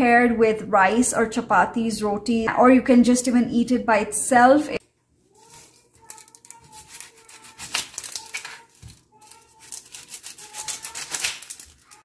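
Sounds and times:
onion skin crackling and rustling: 5.3 - 12.0.

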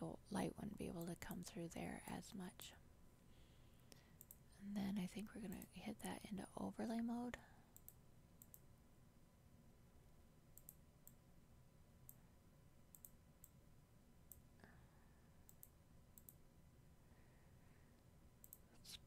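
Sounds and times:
computer mouse clicks: 3.9 - 4.4, 7.8 - 8.6, 10.6 - 11.2, 12.9 - 13.6, 15.4 - 16.4, 18.4 - 19.0.

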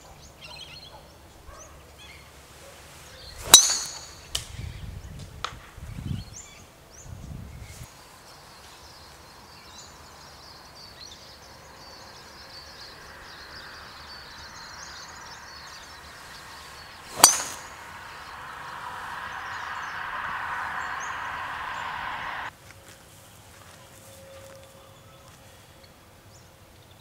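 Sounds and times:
golf club striking ball: 3.4 - 4.3, 16.8 - 22.5.

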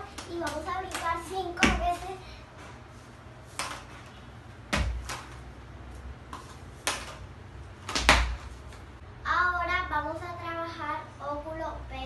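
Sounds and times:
feet landing on tiled floor: 3.5 - 4.1, 4.7 - 5.5, 7.8 - 8.9.

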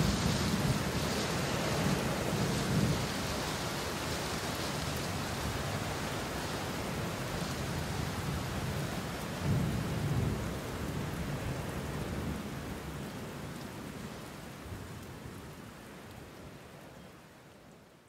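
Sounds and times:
low rumble of thunder: 0.0 - 3.4, 8.2 - 12.9
steady rain falling: 0.0 - 18.0.

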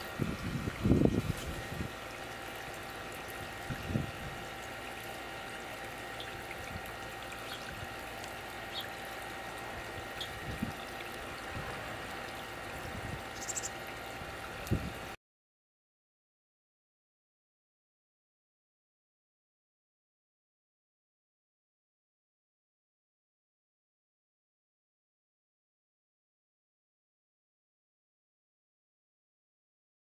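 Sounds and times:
outdoor background hiss: 0.0 - 15.2
wind bumps on microphone: 0.2 - 1.9.

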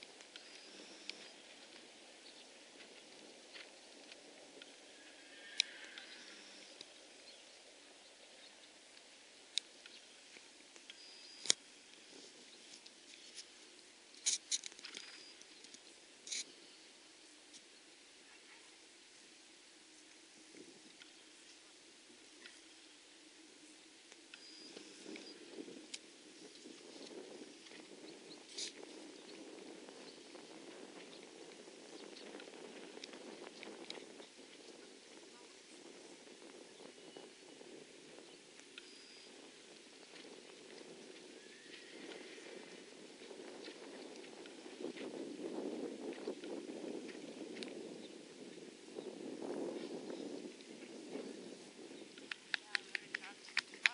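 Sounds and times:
faint outdoor background noise: 0.0 - 53.9
horse hooves clicking on grass: 0.0 - 53.9
soft ticks: 0.1 - 1.8.

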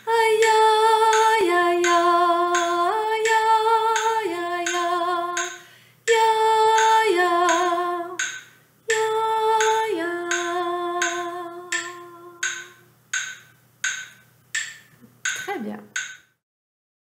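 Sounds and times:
woman singing: 0.0 - 8.3, 8.9 - 12.8
metronome ticking: 0.0 - 16.4.

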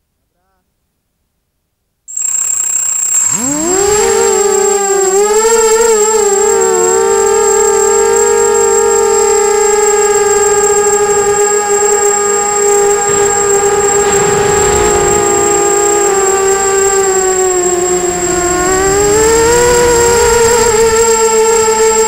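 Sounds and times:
quadcopter motors whining: 2.1 - 22.0
wind noise rush: 7.4 - 22.0.

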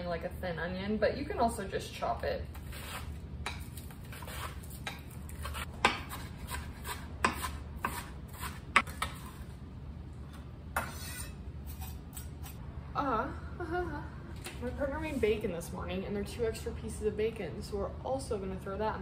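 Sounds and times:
onion rubbed across mandoline slicer: 2.6 - 3.2, 4.0 - 8.6
knife chopping on cutting board: 2.9 - 9.3.

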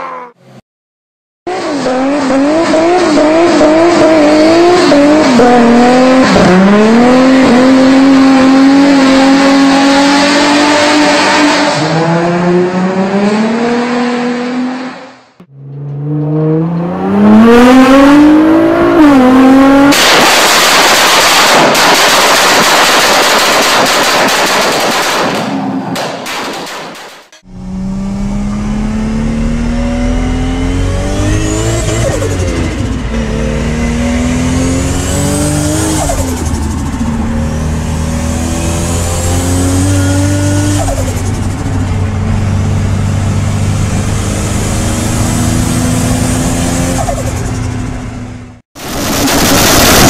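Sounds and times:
car engine revving: 1.5 - 21.8, 27.4 - 50.0
loud rushing noise: 48.8 - 50.0.

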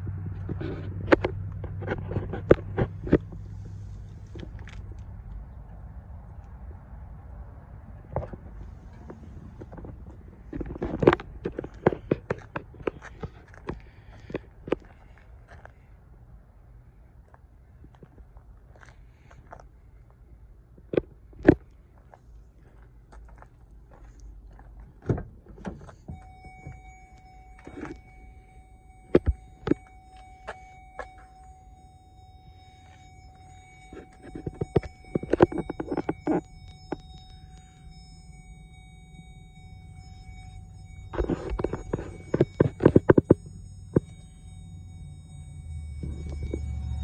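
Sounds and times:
steady high tone: 26.0 - 47.0.

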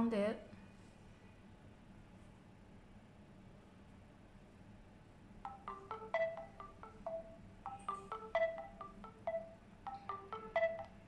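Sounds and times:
smartwatch chiming melody: 5.5 - 11.0.

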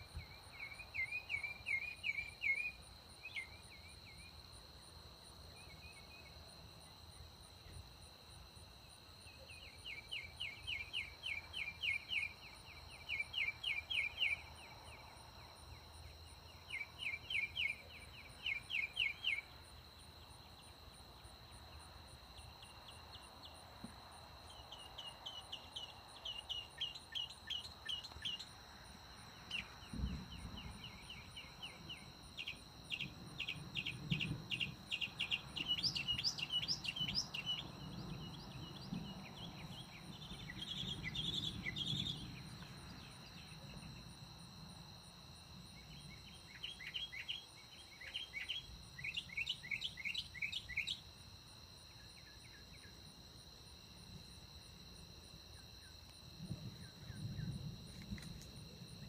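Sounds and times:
night insects droning: 0.0 - 59.0
bird chirping: 29.5 - 42.3
distant thunder rumble: 29.8 - 32.0, 32.9 - 43.1.

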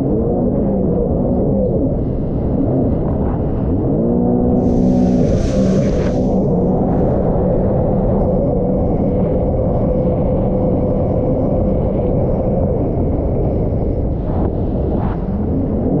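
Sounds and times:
jet ski engine whine: 3.9 - 14.0
wind and water rushing: 4.6 - 8.0.

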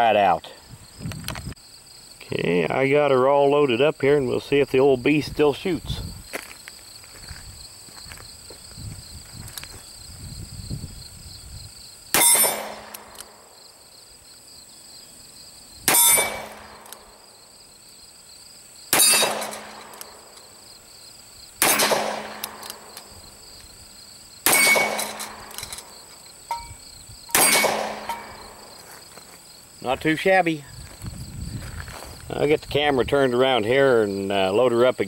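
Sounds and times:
revolver shots: 21.6 - 22.9, 24.5 - 25.6, 27.3 - 28.6
metallic ringing: 26.5 - 28.6.

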